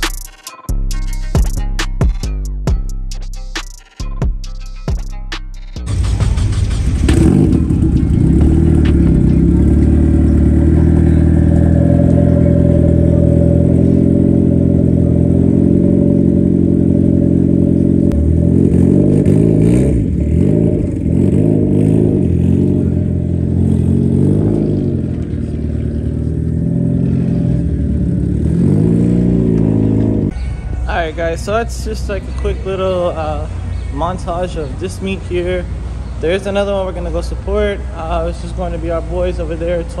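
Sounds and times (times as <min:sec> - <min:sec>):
car engine revving: 0:04.5 - 0:30.4.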